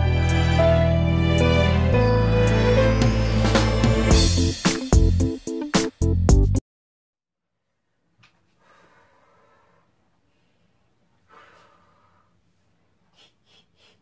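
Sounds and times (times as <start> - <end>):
woman breathing heavily: 8.5 - 14.0.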